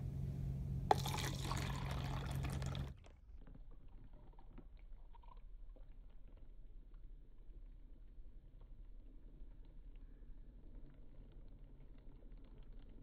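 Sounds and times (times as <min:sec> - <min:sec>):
water splashing into cup: 0:00.9 - 0:03.1.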